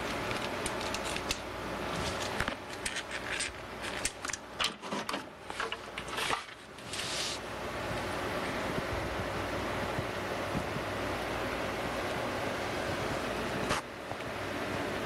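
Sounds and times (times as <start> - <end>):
clicks clatter and crackle: 0.0 - 6.9
steady low hum: 0.0 - 15.0.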